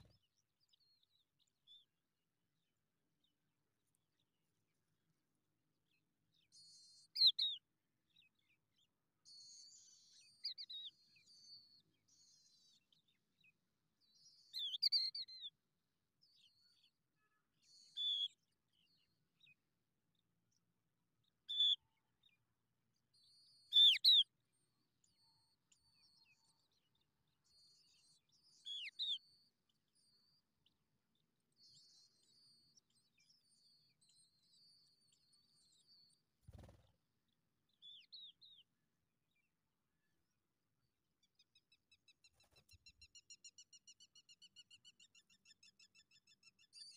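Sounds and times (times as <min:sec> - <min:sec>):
faint thin twittering: 0:35.9 - 0:36.9.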